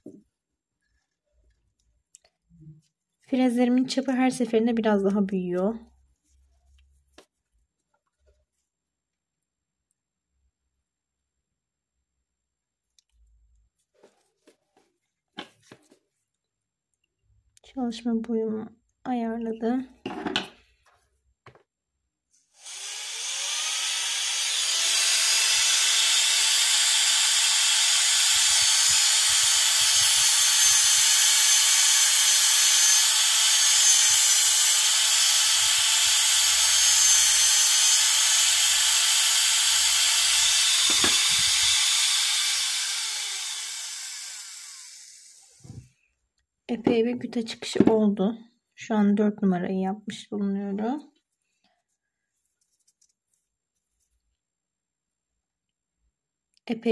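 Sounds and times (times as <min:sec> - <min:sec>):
dental drill whining: 0:22.6 - 0:45.6.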